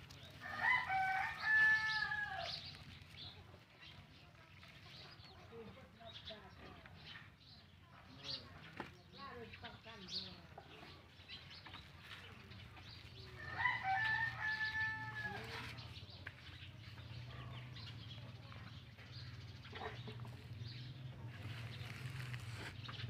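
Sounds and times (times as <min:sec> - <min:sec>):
rooster crowing: 0:00.4 - 0:02.5, 0:13.4 - 0:15.4.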